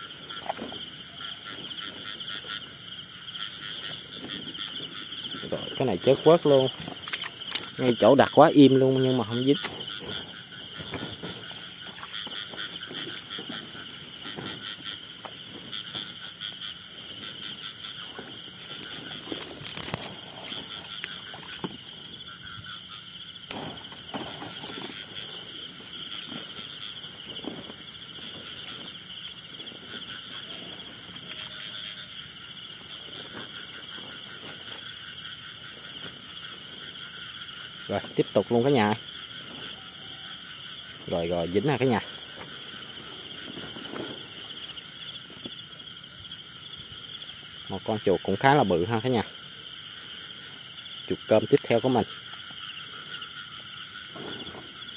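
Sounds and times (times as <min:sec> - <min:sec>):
frogs and insects trilling: 0:00.0 - 0:54.9
footsteps through grass: 0:09.8 - 0:22.8, 0:24.1 - 0:37.8, 0:39.1 - 0:45.7.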